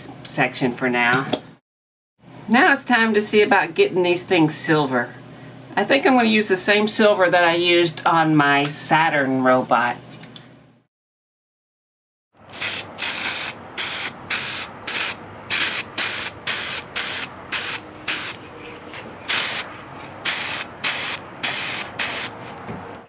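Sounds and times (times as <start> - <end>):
aerosol spray hissing: 12.5 - 18.4, 19.3 - 22.4.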